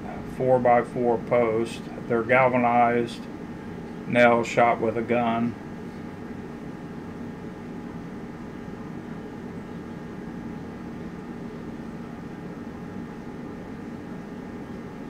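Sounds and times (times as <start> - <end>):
steady mechanical hum: 0.0 - 15.0.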